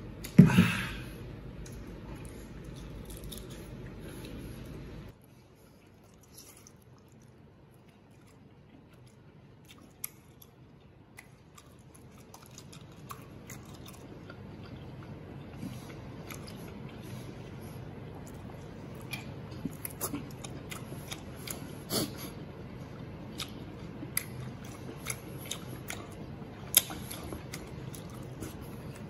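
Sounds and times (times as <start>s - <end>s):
chewing with crisp clicks: 1.6s - 21.8s, 22.8s - 29.0s.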